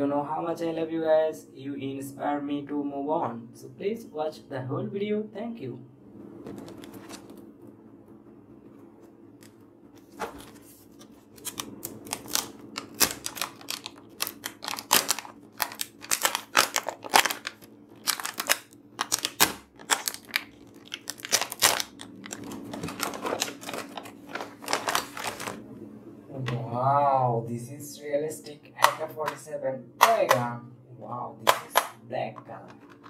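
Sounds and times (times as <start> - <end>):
plastic film crinkling and tearing: 10.0 - 25.6.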